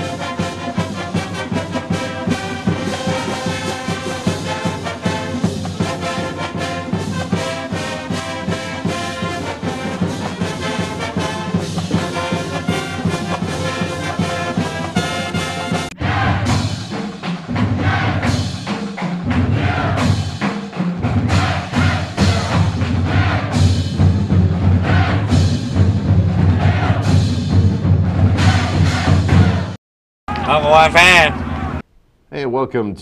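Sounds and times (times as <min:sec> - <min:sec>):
brass-led orchestral music: 0:00.0 - 0:17.1, 0:17.8 - 0:18.3, 0:21.2 - 0:29.8.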